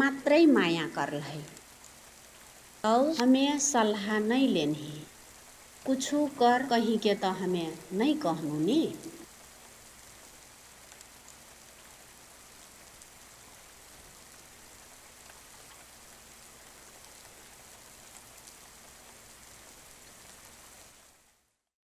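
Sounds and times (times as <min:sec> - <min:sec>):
faint steady hiss: 0:00.0 - 0:21.7
faint ticks: 0:10.9 - 0:12.0.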